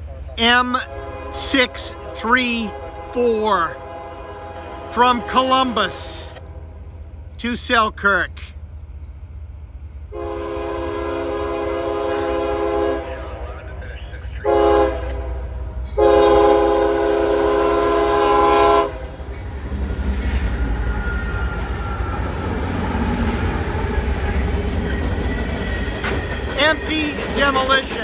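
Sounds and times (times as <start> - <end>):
low rumble of locomotives: 0.0 - 28.0
locomotive air horn blasts: 0.5 - 6.9, 10.1 - 13.2, 14.4 - 19.1.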